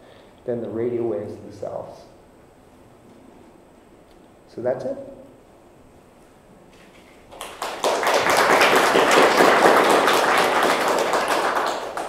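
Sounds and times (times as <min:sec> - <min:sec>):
audience applauding: 0:07.3 - 0:12.0.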